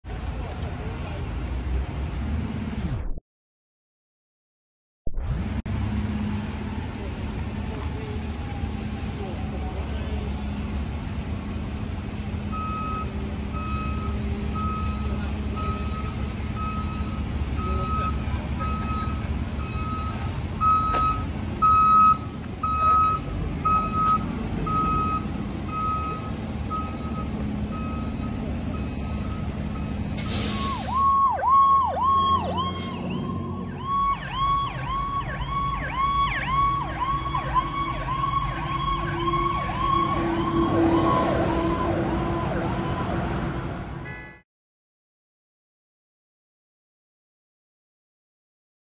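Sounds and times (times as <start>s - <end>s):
diesel engine idling: 6.5s - 40.9s
backup alarm beeping: 12.6s - 29.9s
electronic siren: 30.7s - 44.4s.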